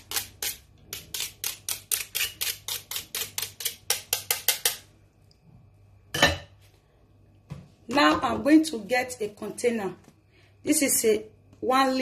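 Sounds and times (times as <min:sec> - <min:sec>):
knife scraping a metal grater: 0:00.0 - 0:04.7.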